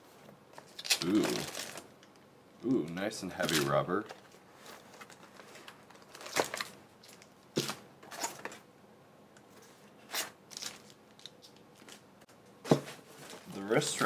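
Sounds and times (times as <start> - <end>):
plastic bags crinkling: 0.6 - 2.0, 3.4 - 8.6.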